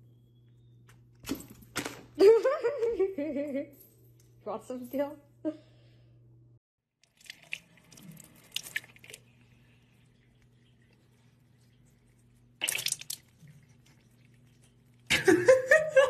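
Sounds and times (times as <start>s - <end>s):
water splashing at sink tap: 7.0s - 15.1s.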